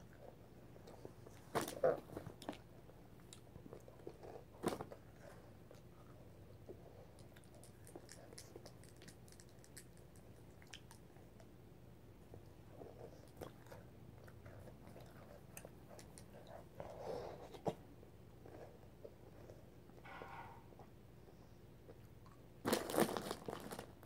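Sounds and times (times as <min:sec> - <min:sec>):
crunching and chewing candy: 0:00.8 - 0:11.5, 0:21.9 - 0:24.0.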